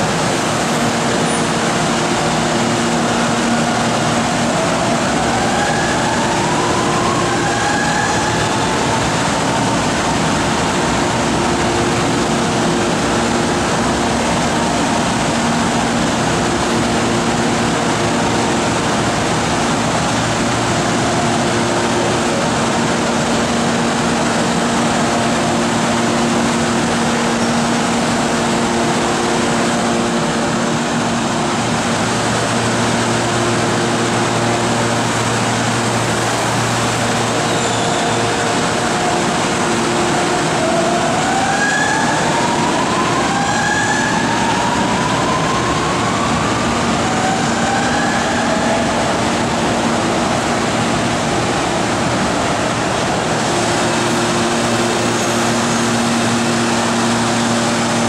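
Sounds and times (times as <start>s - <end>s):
steady loud hum with held tones: 0.0s - 58.0s.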